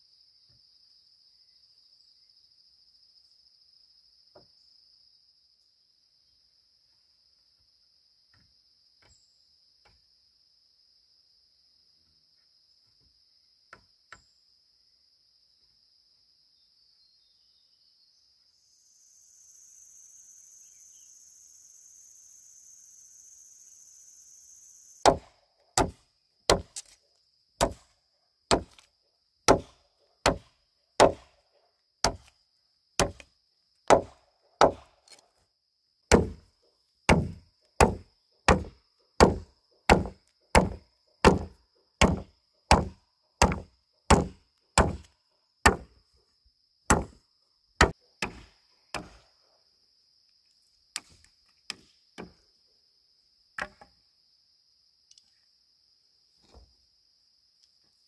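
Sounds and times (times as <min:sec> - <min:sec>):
cricket chirring: 0:00.0 - 0:58.0
hand tool chopping blows: 0:25.0 - 0:26.9, 0:27.6 - 0:27.9, 0:28.5 - 0:28.9, 0:29.5 - 0:31.4, 0:32.0 - 0:32.3, 0:33.0 - 0:33.3, 0:33.9 - 0:35.2, 0:36.1 - 0:36.4, 0:37.1 - 0:45.1, 0:45.7 - 0:45.9, 0:46.9 - 0:47.2.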